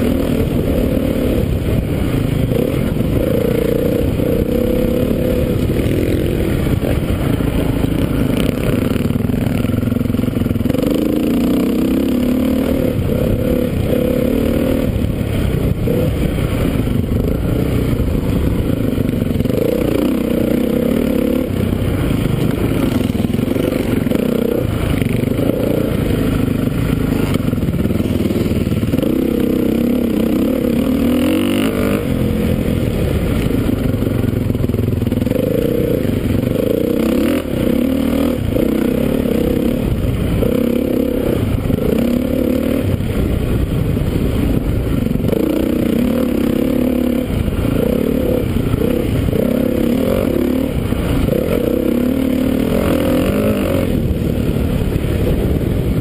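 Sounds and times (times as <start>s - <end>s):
motorcycle engine revving: 0.0s - 56.0s.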